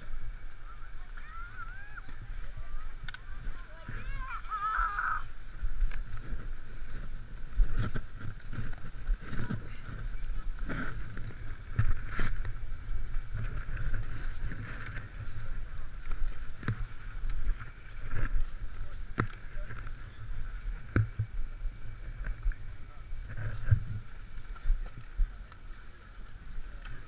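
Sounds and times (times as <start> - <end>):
skis scraping over snow: 0.0 - 27.0
wind rumble on microphone: 0.0 - 27.0
knocks of skis and poles: 20.8 - 21.4.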